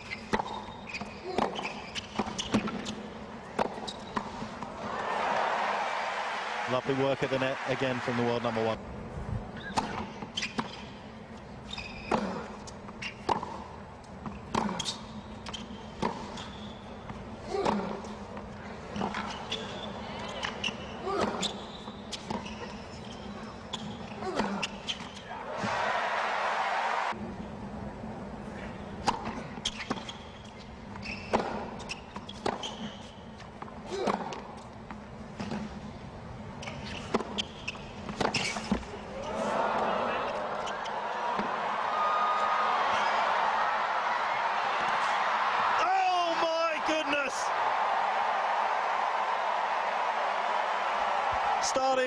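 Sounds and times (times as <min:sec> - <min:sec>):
shoe squeaks: 0:00.0 - 0:03.0, 0:03.7 - 0:04.4, 0:09.6 - 0:10.9, 0:11.6 - 0:13.3, 0:14.7 - 0:16.9, 0:19.0 - 0:25.3, 0:29.4 - 0:33.2, 0:36.6 - 0:38.9, 0:40.5 - 0:41.0
hushed stadium crowd: 0:04.3 - 0:08.8, 0:25.2 - 0:28.8, 0:38.7 - 0:52.0
tennis ball hit by rackets: 0:40.6 - 0:41.6.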